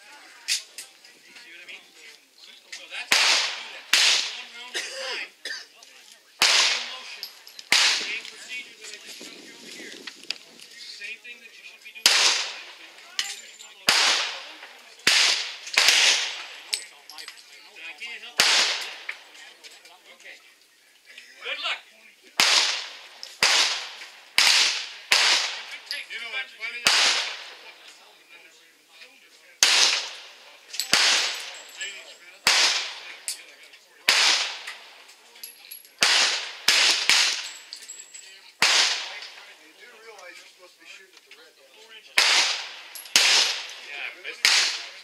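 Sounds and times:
handgun shots echoing: 0:03.1 - 0:04.5, 0:06.4 - 0:08.4, 0:12.0 - 0:12.8, 0:13.8 - 0:16.8, 0:18.4 - 0:19.2, 0:22.4 - 0:26.0, 0:26.8 - 0:27.7, 0:29.6 - 0:31.7, 0:32.4 - 0:33.4, 0:34.1 - 0:35.0, 0:36.0 - 0:37.6, 0:38.6 - 0:39.5, 0:42.2 - 0:45.0.

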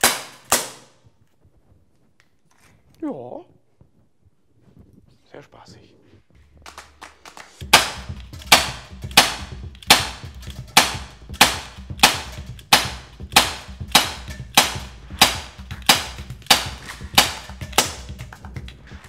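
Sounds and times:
bb pistol shots: 0:00.0 - 0:01.0, 0:06.7 - 0:18.4.

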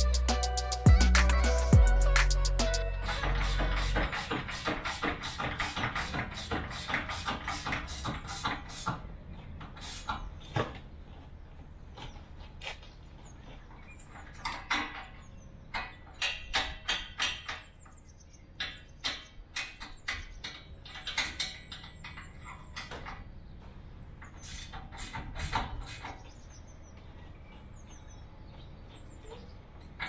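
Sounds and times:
spanner clicking on bolts: 0:03.1 - 0:09.0, 0:14.0 - 0:17.8, 0:18.6 - 0:23.3.

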